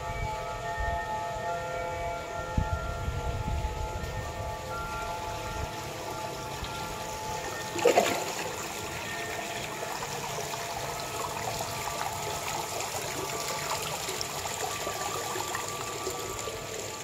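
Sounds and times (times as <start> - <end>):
fountain splashing into pond: 5.7 - 17.0.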